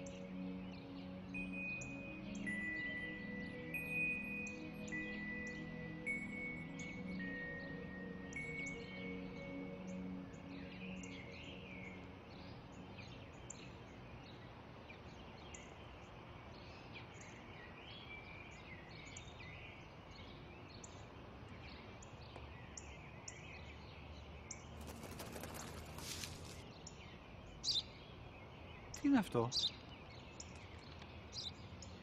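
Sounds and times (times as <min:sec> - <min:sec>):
faint outdoor background: 0:00.0 - 0:32.0
small birds chirping: 0:00.0 - 0:32.0
brief rustling: 0:24.9 - 0:26.6.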